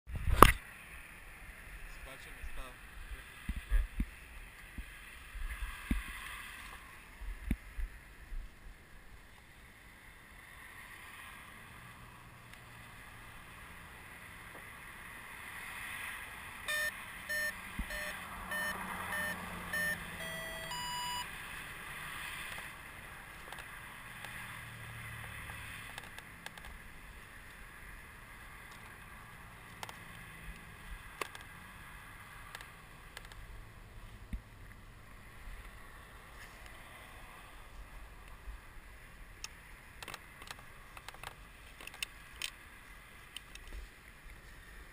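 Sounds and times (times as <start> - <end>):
rising electronic tones: 16.7 - 21.3
short electronic beeps: 16.7 - 21.3.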